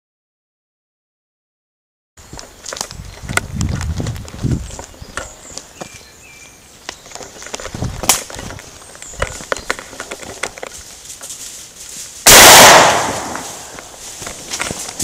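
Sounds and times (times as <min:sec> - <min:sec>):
footsteps in dry leaves: 0:02.2 - 0:15.0
gunshot: 0:12.2 - 0:13.7.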